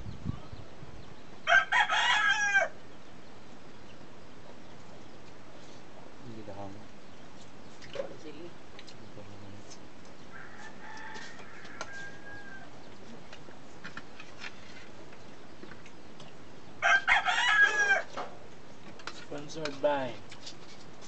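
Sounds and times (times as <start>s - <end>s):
distant rooster crow: 1.4s - 2.8s, 10.3s - 12.8s, 16.8s - 18.3s
rooster crowing: 1.4s - 2.8s, 10.3s - 12.8s, 16.8s - 18.2s.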